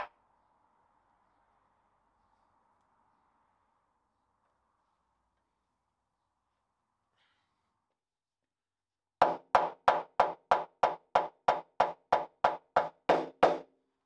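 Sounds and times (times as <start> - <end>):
rubber mallet knocking: 9.2 - 13.7.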